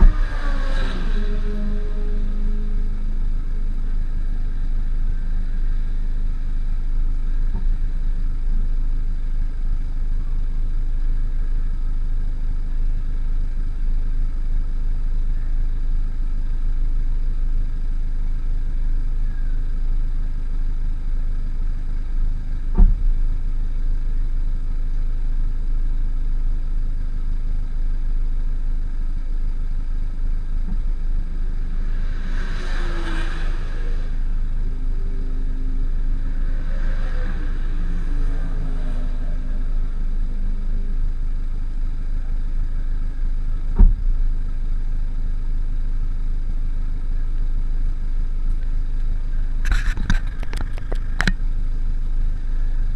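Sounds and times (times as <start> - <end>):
sports car exhaust idling: 0.0 - 52.9
brief thump: 22.7 - 23.1, 43.8 - 44.2.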